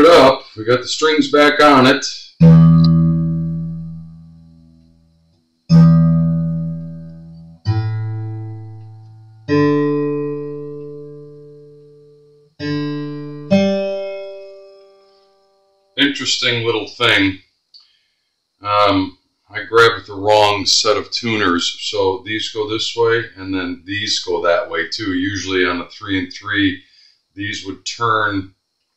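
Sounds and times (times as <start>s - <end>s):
acoustic guitar strings plucked: 2.4s - 4.8s, 5.7s - 15.8s.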